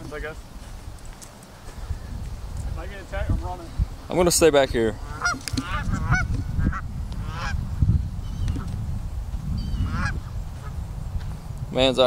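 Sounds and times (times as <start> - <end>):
geese honking: 4.9 - 7.6, 9.6 - 10.8.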